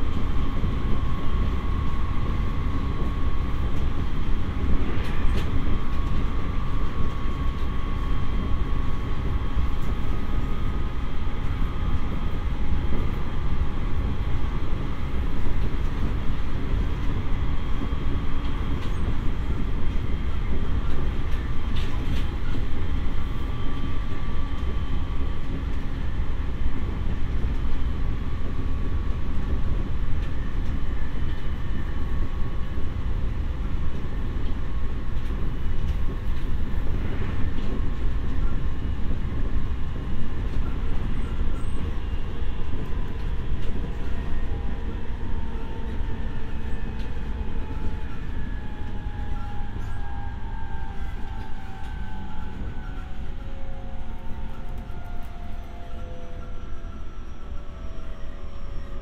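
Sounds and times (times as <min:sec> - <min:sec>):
faint steady whines: 0:00.0 - 0:59.0
train wheels rumbling on rail: 0:00.0 - 0:59.0.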